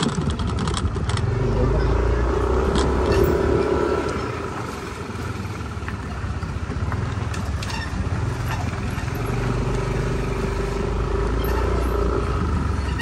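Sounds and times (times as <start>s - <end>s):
wind rushing over microphone: 0.0s - 6.9s
motor scooter running: 0.0s - 13.0s.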